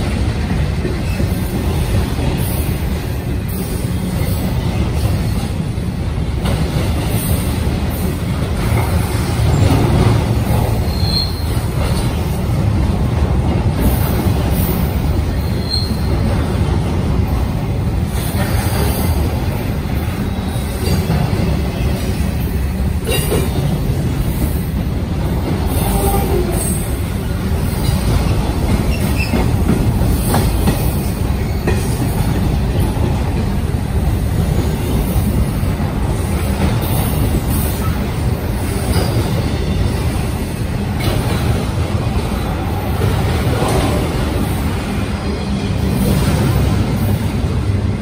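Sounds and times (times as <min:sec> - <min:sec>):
freight train wheels rumbling on rail: 0:00.0 - 0:48.0
high wheel squeals: 0:10.8 - 0:11.6.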